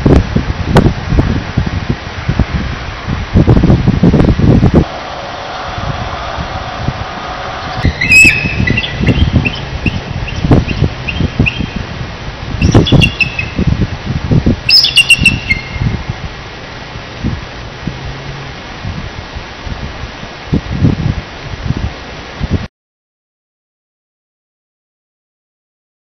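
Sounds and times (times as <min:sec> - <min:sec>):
wind buffeting microphone: 0:00.0 - 0:22.7
eagles chattering calls: 0:04.9 - 0:11.8, 0:12.6 - 0:13.6, 0:14.7 - 0:15.8.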